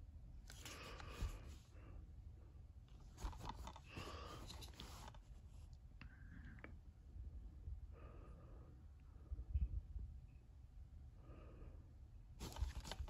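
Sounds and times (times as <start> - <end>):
case rustling in cardboard slipcover: 3.0 - 5.2, 12.4 - 13.0.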